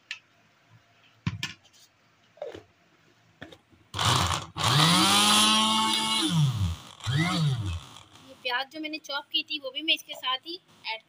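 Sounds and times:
electric food chopper whining: 4.0s - 8.4s.

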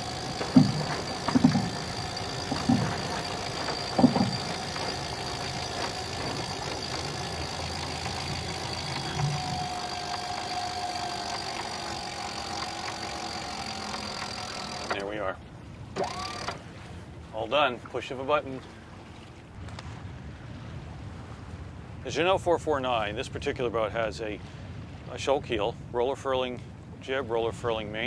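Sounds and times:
low clunks: 0.0s - 15.0s
electric winch whining: 0.0s - 15.2s, 16.0s - 16.6s.

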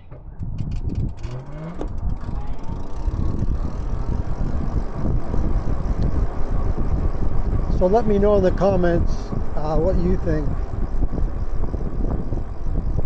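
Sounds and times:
wind rush on microphone: 0.2s - 13.0s
freewheel ratchet clicks: 0.4s - 13.0s
electric motor whine: 1.6s - 13.0s.

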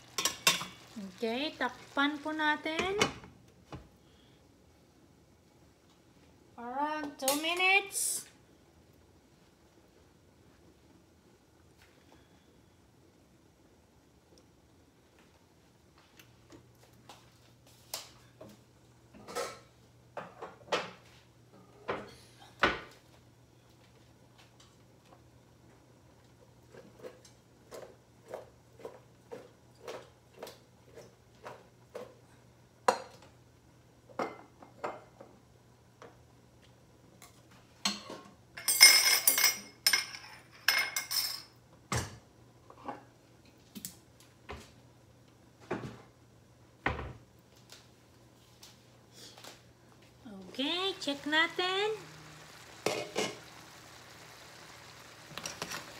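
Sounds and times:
dishes and cutlery clattering: 0.2s - 0.8s, 37.9s - 41.6s.

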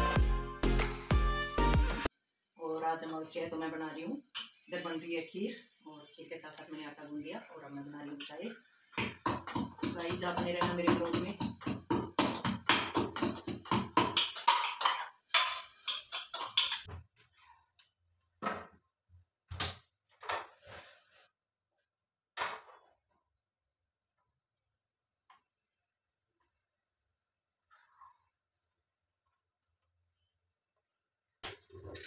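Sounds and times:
background music with a beat: 0.0s - 2.1s
ladle clinking on pots: 9.0s - 16.9s.

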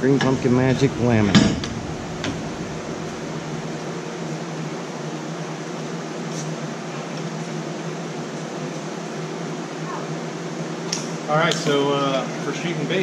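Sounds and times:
low hum: 0.0s - 5.1s
electric fan whirring: 0.0s - 13.0s.

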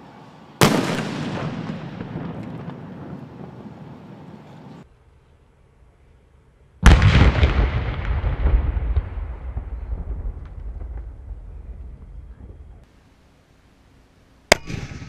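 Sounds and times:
firecracker bang: 0.6s - 4.0s, 6.8s - 12.1s
low rumble: 6.9s - 12.9s.

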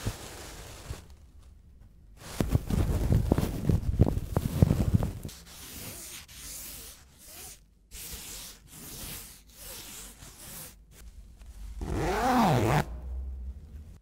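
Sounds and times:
gloved hands rubbing fabric: 2.2s - 12.8s.

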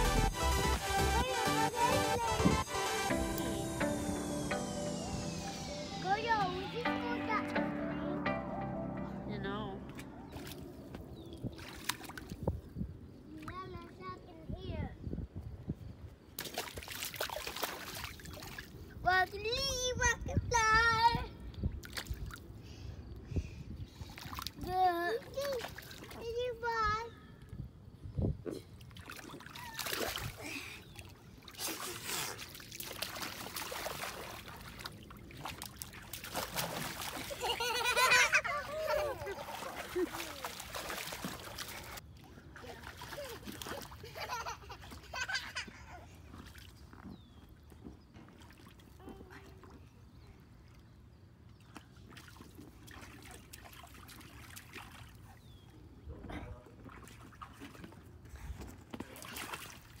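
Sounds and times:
feet splashing in shallow water: 9.9s - 12.7s, 16.3s - 19.0s, 21.8s - 22.6s, 24.0s - 26.2s, 28.6s - 49.9s, 51.6s - 55.7s, 56.7s - 60.0s
shallow water sloshing: 28.8s - 45.1s.

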